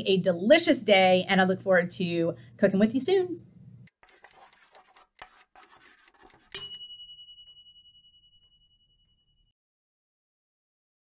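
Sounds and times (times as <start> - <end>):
chalk scratching on chalkboard: 3.9 - 6.6
bright bell-like chime: 6.5 - 9.5.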